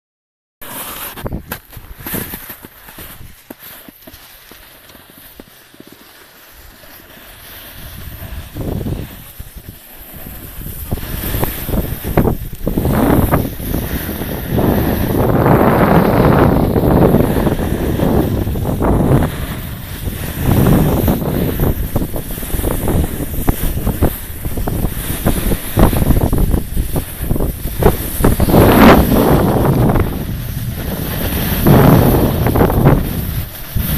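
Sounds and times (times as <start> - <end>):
wind buffeting microphone: 7.7 - 33.9.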